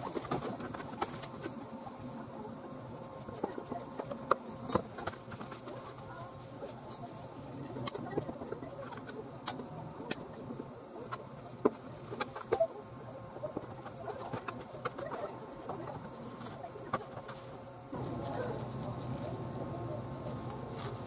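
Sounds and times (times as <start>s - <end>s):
faint wavering murmur: 0.0s - 21.0s
steady low hum: 0.0s - 21.0s.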